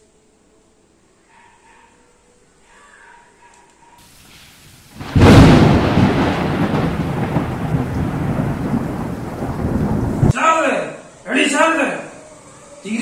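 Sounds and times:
thunderclap and rumbling: 4.2s - 10.4s.

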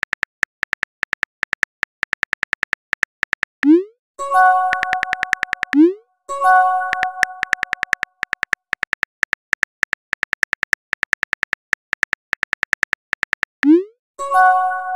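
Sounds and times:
keyboard tap clicks: 0.0s - 3.8s, 4.7s - 5.9s, 6.9s - 13.8s
message chime: 3.8s - 7.8s.

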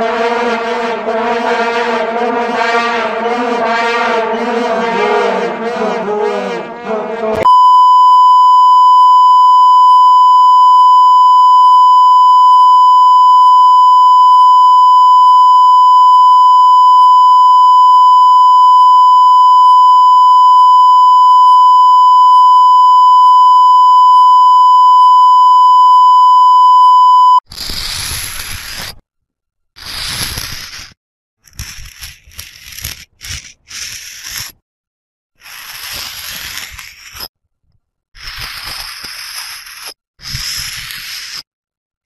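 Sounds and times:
vuvuzela blare: 0.0s - 7.6s
steady reference tone beep: 7.4s - 27.4s
chalk scraping on blackboard: 27.6s - 29.0s, 29.8s - 30.9s, 31.5s - 34.6s, 35.4s - 37.3s, 38.2s - 41.4s.

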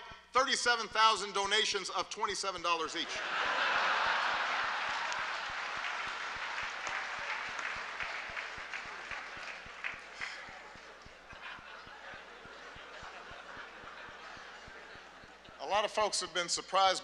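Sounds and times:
audience laughing: 3.0s - 16.4s
audience applauding: 3.2s - 15.9s.

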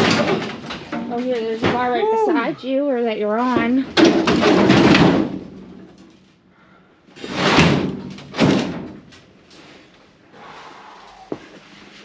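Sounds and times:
sheet metal scraping and clanking: 7.2s - 8.9s.

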